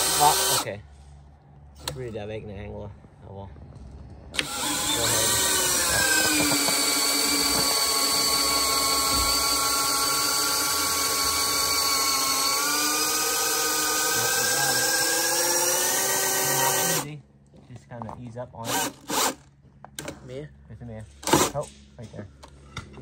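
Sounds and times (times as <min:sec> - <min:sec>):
power drill boring into wood: 0:00.0 - 0:00.7, 0:04.4 - 0:17.1, 0:18.6 - 0:19.4.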